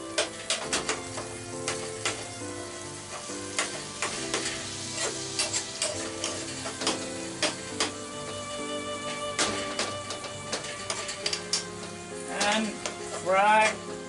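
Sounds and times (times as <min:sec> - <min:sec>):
fish sizzling in hot oil: 0:00.0 - 0:14.0
metal spoon scraping pan: 0:03.1 - 0:08.0, 0:09.0 - 0:13.8.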